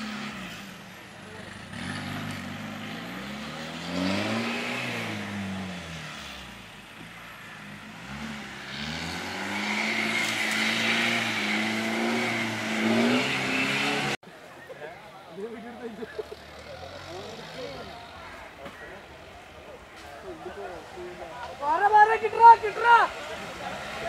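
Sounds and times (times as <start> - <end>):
jeep engine revving: 0.0 - 14.2, 16.1 - 18.4, 23.1 - 24.0.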